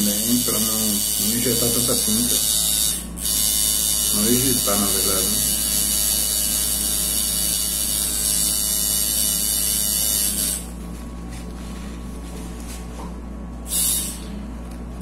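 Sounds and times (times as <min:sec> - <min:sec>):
tattoo machine buzzing: 0:00.0 - 0:10.9, 0:13.6 - 0:14.5
low mains hum: 0:00.0 - 0:15.0.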